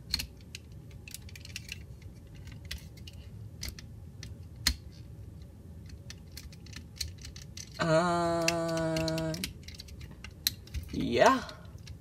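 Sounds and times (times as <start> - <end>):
plastic toy clicks and rattling: 0.0 - 5.0, 5.8 - 12.0.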